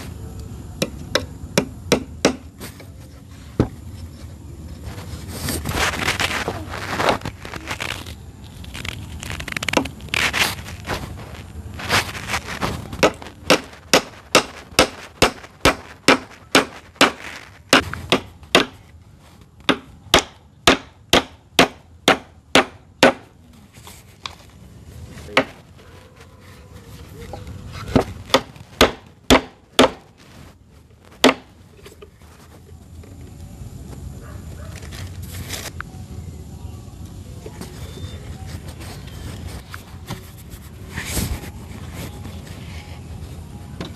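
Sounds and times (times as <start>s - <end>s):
hand tool striking wood: 0.8s - 2.9s, 13.0s - 18.9s, 19.6s - 23.3s, 25.3s - 25.6s, 27.9s - 30.2s, 31.2s - 31.5s.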